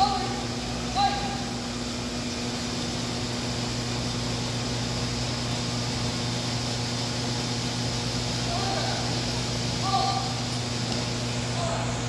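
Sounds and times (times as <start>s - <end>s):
ventilation hum and hiss: 0.0s - 12.0s.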